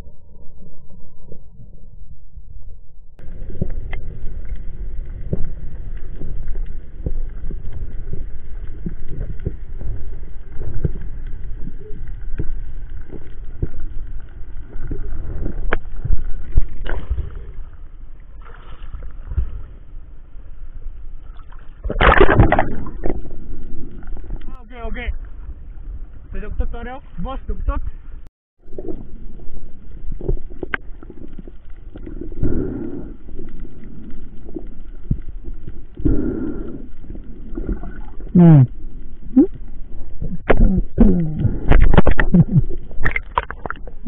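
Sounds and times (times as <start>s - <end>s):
muffled underwater rushing water: 0.0s - 44.0s
loud splash of water: 21.5s - 23.3s.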